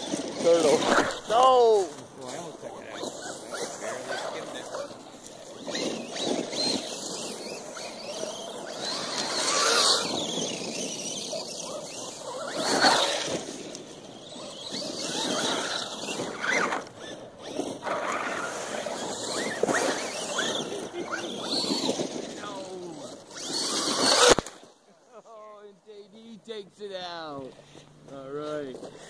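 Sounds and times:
toy truck motor whining: 2.4s - 24.7s.

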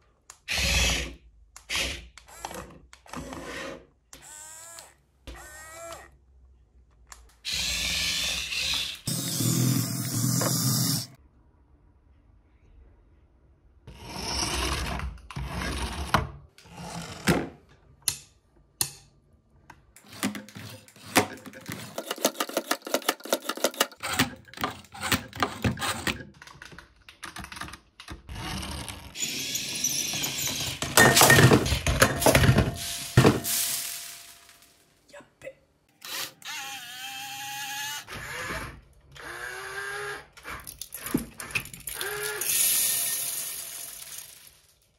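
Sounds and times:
toy electric motors whirring: 7.4s - 11.1s, 36.0s - 44.6s.

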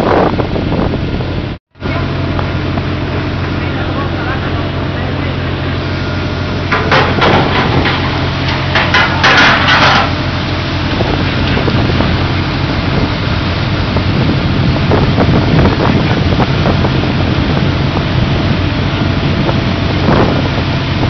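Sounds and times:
wind noise: 0.0s - 3.5s, 5.5s - 21.0s
low machinery hum: 0.0s - 21.0s
clattering knocks: 6.7s - 10.2s.

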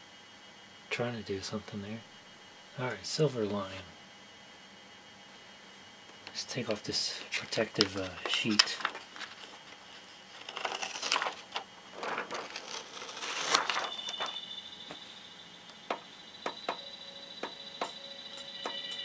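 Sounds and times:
plastic film peeling and rustling: 7.4s - 14.4s
faint high-pitched tone: 13.6s - 19.0s.

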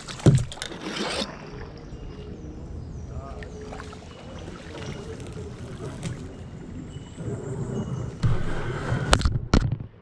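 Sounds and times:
paddle strokes and water sloshing: 0.0s - 8.9s.

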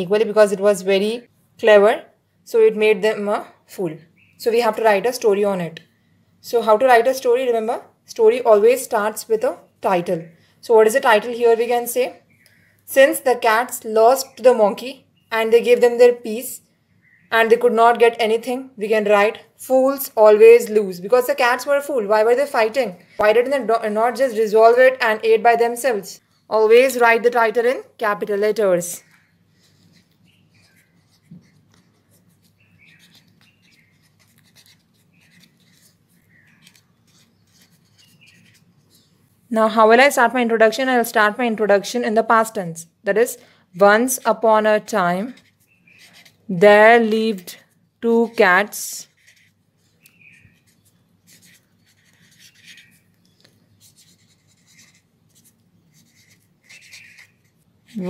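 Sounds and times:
pen scratching on paper: 29.5s - 38.8s, 48.2s - 49.6s, 50.3s - 53.1s, 53.8s - 58.0s.

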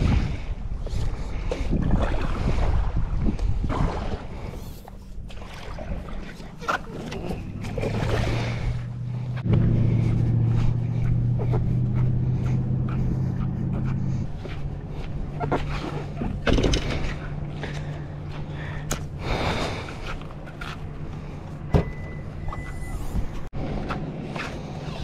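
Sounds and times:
engine running: 6.4s - 25.0s
knocks and bumps: 15.4s - 17.4s.

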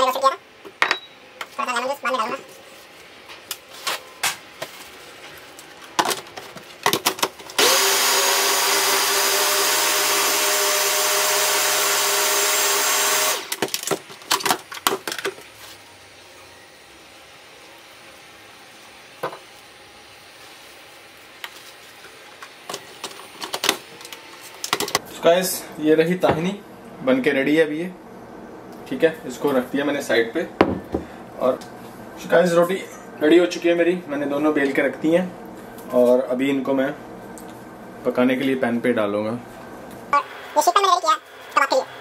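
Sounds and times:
food processor motor running: 7.6s - 13.6s.

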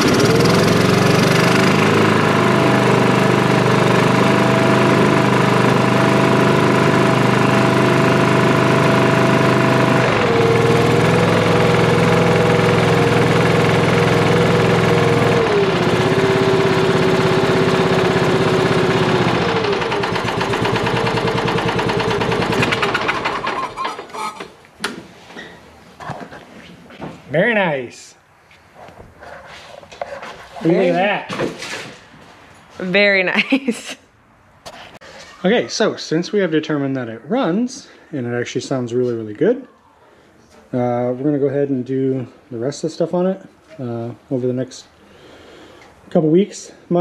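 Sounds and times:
lawn tractor engine running: 0.0s - 24.4s.

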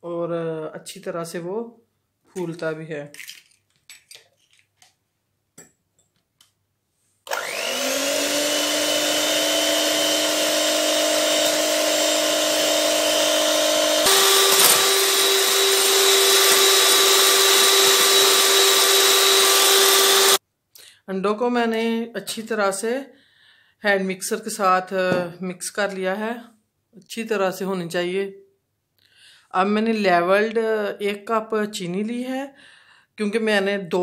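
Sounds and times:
electric hand mixer whining: 7.3s - 20.4s.

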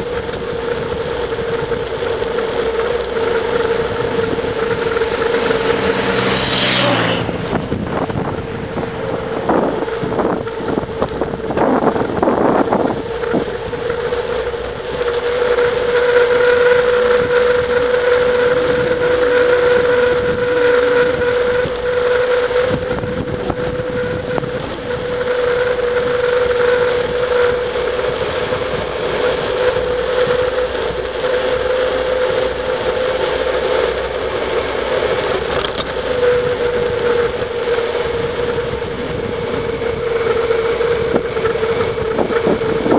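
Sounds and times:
bicycle tyre noise: 0.0s - 42.9s
lorry engine passing: 0.0s - 42.9s
steady high whine: 0.0s - 42.9s
wind rushing over microphone: 0.0s - 42.9s.

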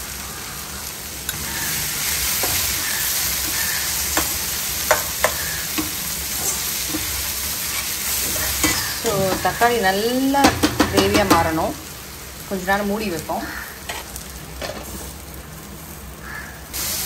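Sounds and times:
onions and tomatoes sizzling in pan: 0.0s - 17.0s
steel ladle scraping and clinking pan: 4.2s - 9.6s.

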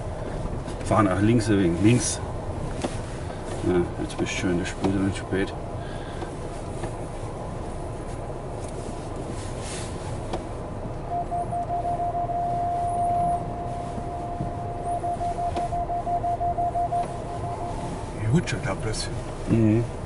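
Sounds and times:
engine and tyres rumble: 0.0s - 20.0s
high electronic warning beep: 11.1s - 18.0s.

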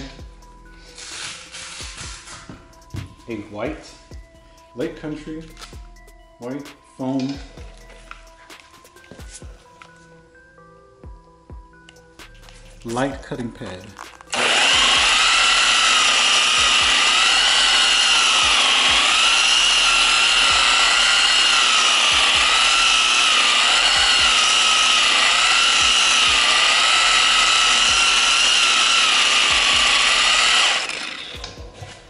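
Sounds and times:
polisher motor whine: 1.0s - 2.6s, 14.3s - 32.0s.

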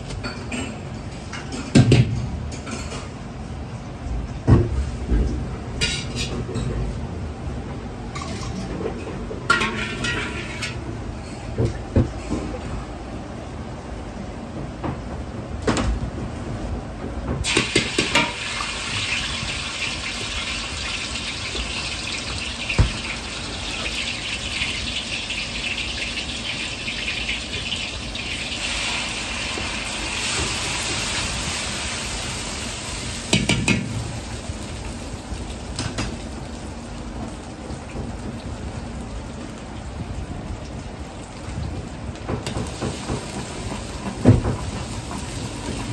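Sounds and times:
garlic sizzling in hot oil: 17.4s - 36.7s, 42.4s - 45.9s.

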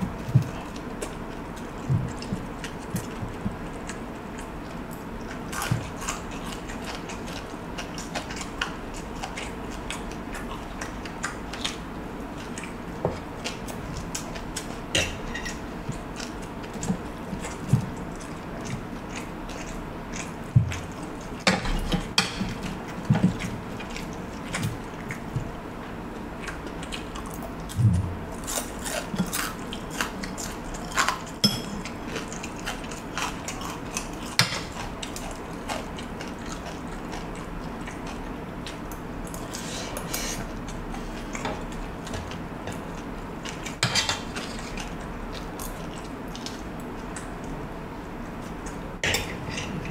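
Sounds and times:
chewing food: 0.0s - 49.9s
cutlery scraping a plate: 15.0s - 15.6s.

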